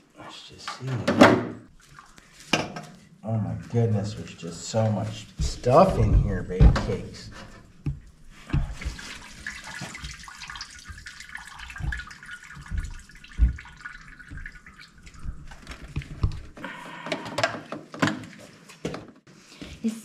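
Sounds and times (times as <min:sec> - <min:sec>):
water running from tap: 0:04.0 - 0:16.6
dull knocks: 0:05.4 - 0:09.0, 0:11.6 - 0:16.6.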